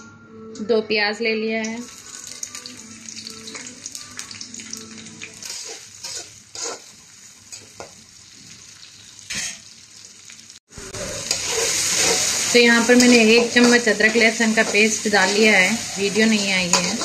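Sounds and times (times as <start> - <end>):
onions sizzling in hot oil: 1.8 - 17.0
spatula scraping a pan: 5.4 - 6.9, 10.9 - 17.0.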